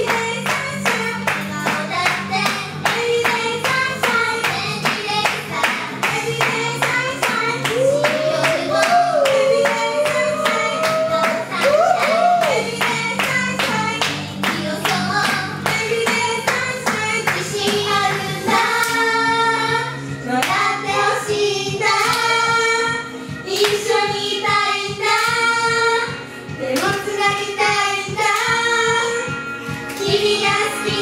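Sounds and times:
clapping beat: 0.0s - 18.2s, 18.8s - 19.1s, 20.4s - 20.7s, 21.9s - 22.6s, 23.4s - 25.5s, 26.7s - 27.5s, 28.1s - 28.7s, 29.6s - 31.0s
young female voices singing pop: 0.0s - 31.0s.

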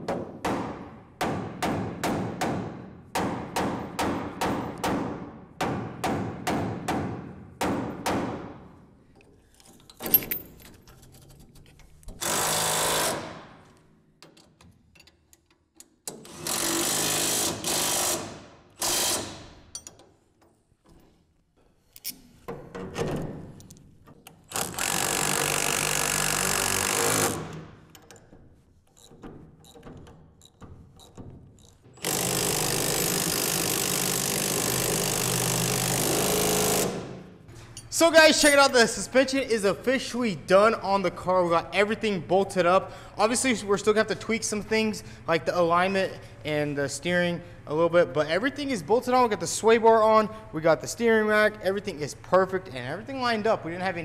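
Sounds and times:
power tool driving bolts: 12.1s - 13.6s, 15.8s - 20.1s, 24.1s - 37.3s.

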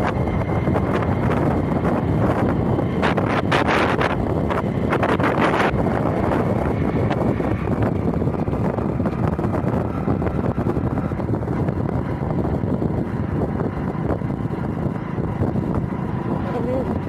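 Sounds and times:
road and engine noise: 0.0s - 17.0s
wind rushing over phone microphone: 0.0s - 17.0s.

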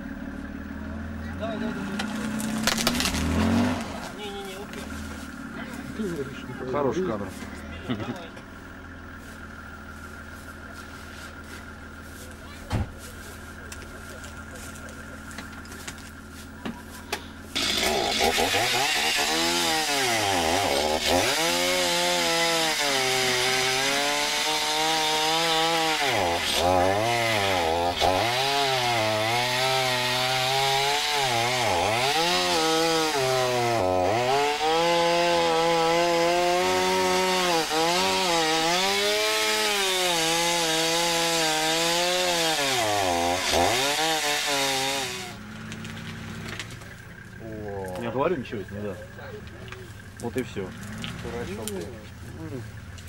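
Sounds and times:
chainsaw cutting branches: 2.0s - 5.3s, 17.5s - 46.8s.

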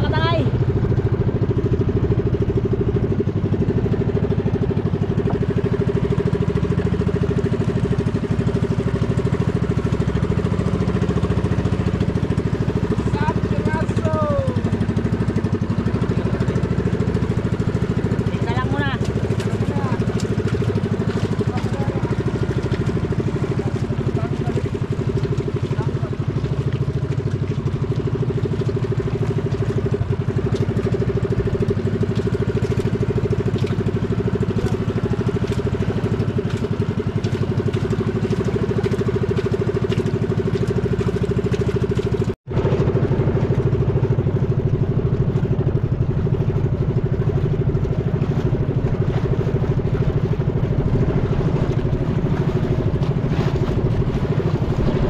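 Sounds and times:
small boat engine running: 0.0s - 55.0s.

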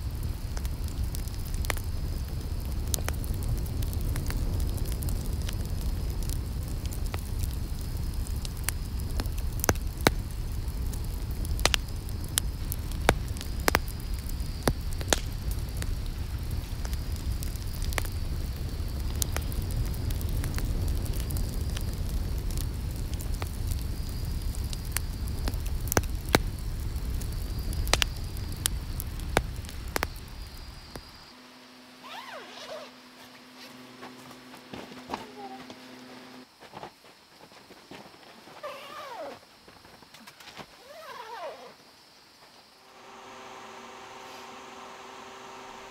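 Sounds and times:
low rush of flame: 0.0s - 31.4s, 42.8s - 45.9s
campfire crackling and popping: 0.0s - 36.5s
low steady hum: 42.8s - 45.9s.

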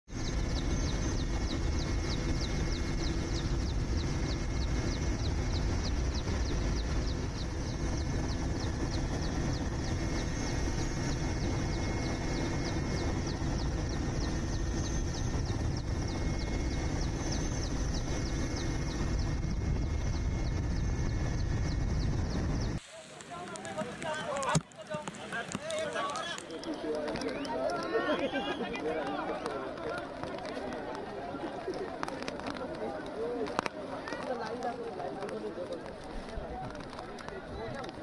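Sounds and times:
helicopter engine and rotor: 0.1s - 22.8s.

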